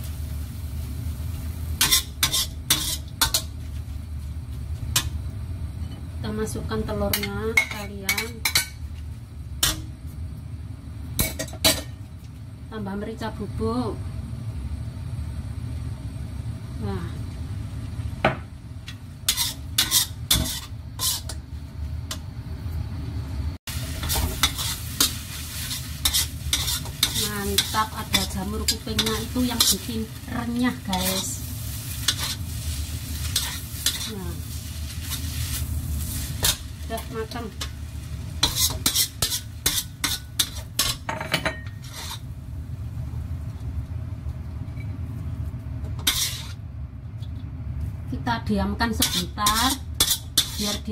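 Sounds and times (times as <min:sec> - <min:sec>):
vegetables sizzling: 0:00.0 - 0:14.0, 0:15.7 - 0:50.9
steady low hum: 0:00.0 - 0:50.9
metal spatula scraping a wok: 0:01.8 - 0:03.6, 0:09.6 - 0:09.9, 0:19.2 - 0:21.4, 0:23.9 - 0:42.3, 0:46.0 - 0:46.6, 0:49.0 - 0:50.9.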